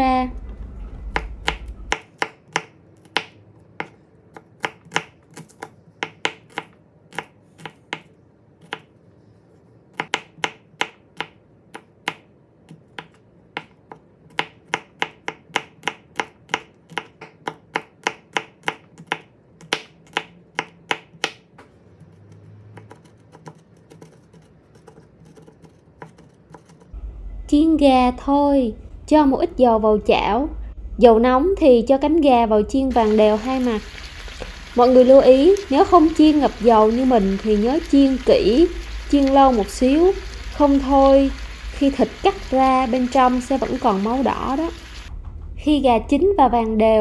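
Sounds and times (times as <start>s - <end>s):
knife chopping on wooden board: 1.2s - 8.9s, 10.0s - 24.1s.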